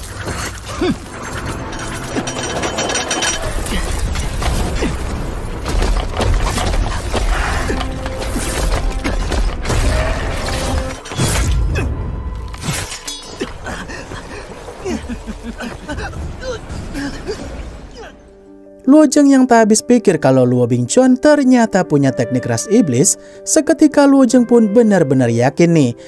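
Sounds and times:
crashing shattering impacts: 0:00.0 - 0:18.4
dramatic background music: 0:00.0 - 0:26.0.

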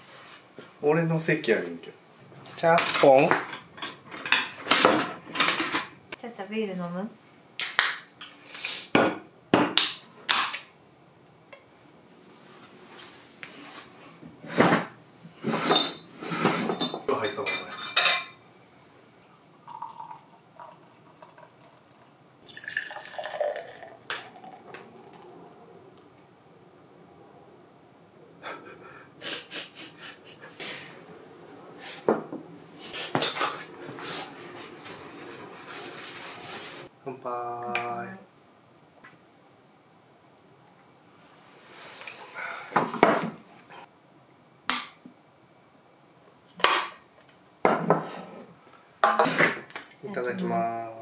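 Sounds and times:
beer glugging and fizzing: 0:19.5 - 0:25.2.

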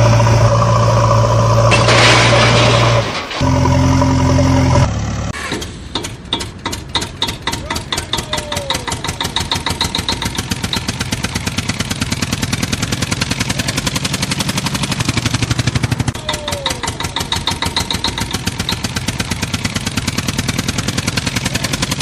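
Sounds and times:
steady drone: 0:00.0 - 0:04.9
diesel tractor engine chugging: 0:00.0 - 0:22.0.

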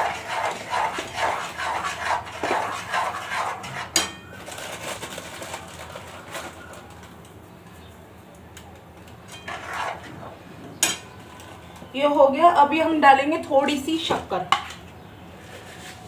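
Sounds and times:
utensils clattering against pan: 0:02.3 - 0:05.1, 0:10.8 - 0:11.6.

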